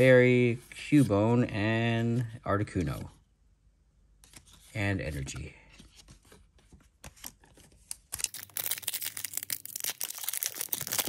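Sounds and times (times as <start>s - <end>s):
foil wrapper crinkling and tearing: 8.1s - 11.0s.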